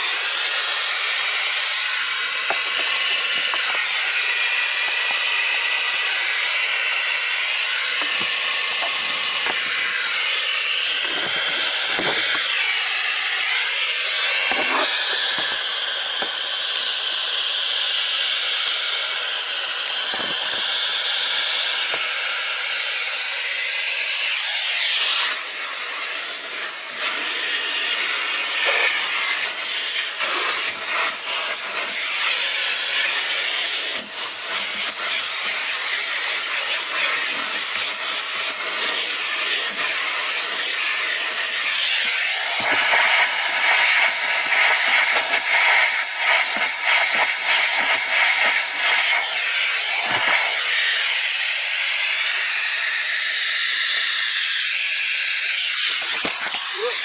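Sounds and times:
vacuum cleaner sucking air: 0:00.0 - 0:57.0
nozzle scraping on cloth: 0:14.5 - 0:15.2.

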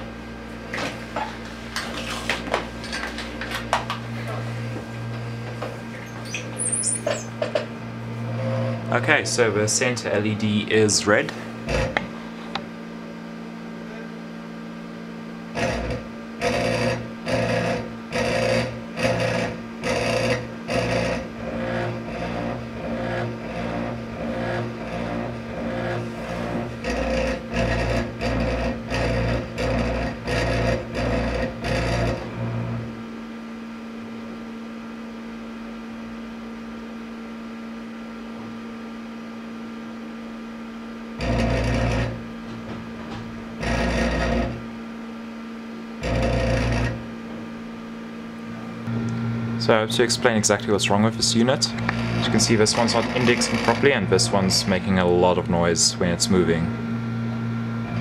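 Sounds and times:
steady low hum: 0:00.0 - 0:58.0
stepper motors buzzing pulses: 0:15.5 - 0:32.9, 0:41.2 - 0:44.7, 0:46.0 - 0:47.1, 0:48.7 - 0:58.0.

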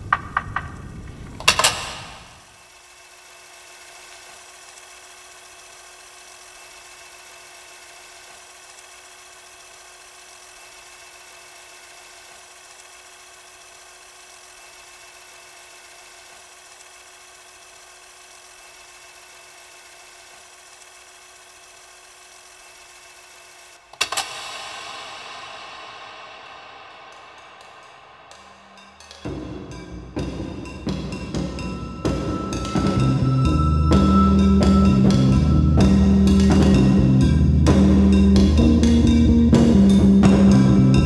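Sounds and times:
faint motor whir: 0:00.9 - 0:24.2
tape hiss: 0:23.2 - 0:41.0.

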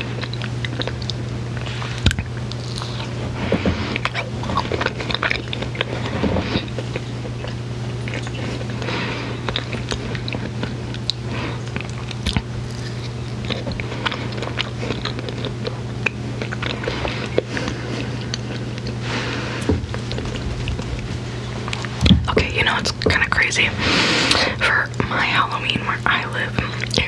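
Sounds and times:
chewing chocolate: 0:00.0 - 0:27.0
steady low hum: 0:00.0 - 0:27.0.

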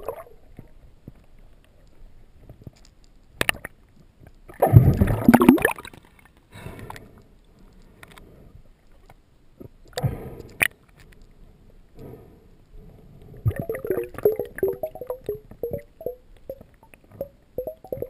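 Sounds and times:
water sloshing and gurgling: 0:04.5 - 0:06.3, 0:13.4 - 0:18.0
gurgling splash: 0:13.5 - 0:16.2.

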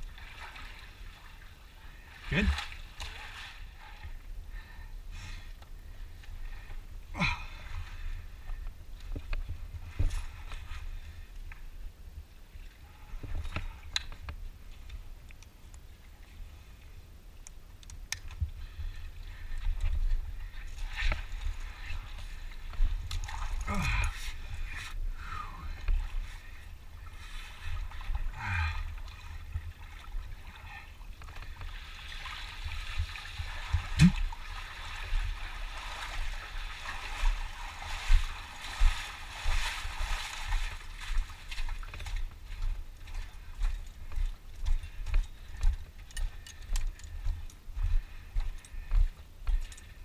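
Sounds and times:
wading and splashing in water: 0:00.0 - 0:50.0
boots walking on sand and rock: 0:34.5 - 0:49.8.

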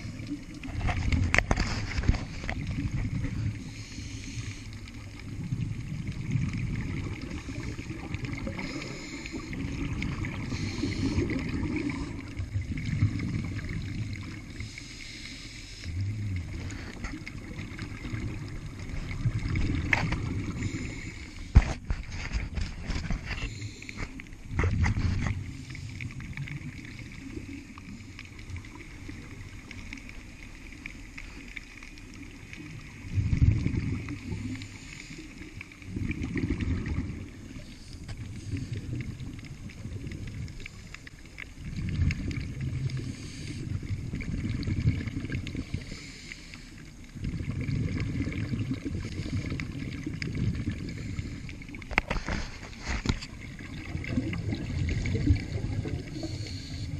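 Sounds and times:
regulator bubbling underwater: 0:00.0 - 0:56.9.

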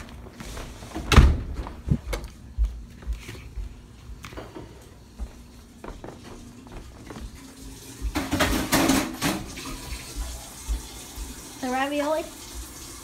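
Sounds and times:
footsteps: 0:00.0 - 0:11.6.

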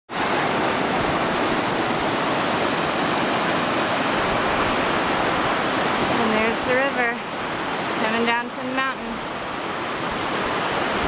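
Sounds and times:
fast-flowing water rushing: 0:00.1 - 0:11.0.

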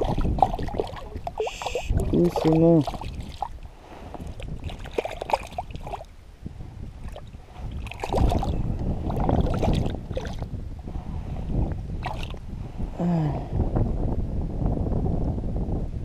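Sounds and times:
fish splashing in water: 0:00.0 - 0:06.1, 0:07.0 - 0:10.5, 0:12.0 - 0:12.4
wind on microphone: 0:00.0 - 0:16.0.

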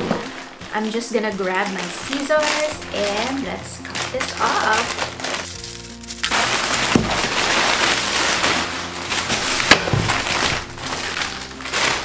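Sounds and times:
plastic bag rustling: 0:00.0 - 0:12.0.

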